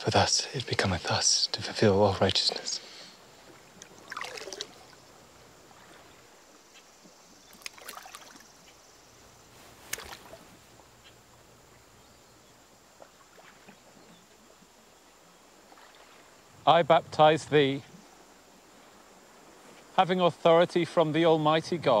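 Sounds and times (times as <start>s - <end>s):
river water lapping: 0.0s - 21.4s
low steady hiss: 0.0s - 22.0s
water splashing: 1.7s - 8.8s, 9.6s - 10.9s, 12.9s - 14.8s, 15.6s - 19.3s.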